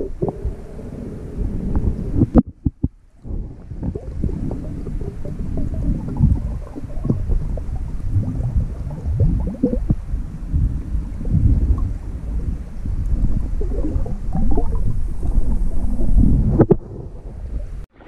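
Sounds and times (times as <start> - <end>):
underwater rumble of moving water: 0.0 - 18.0
underwater clicks and knocks: 1.7 - 10.0, 13.0 - 17.2.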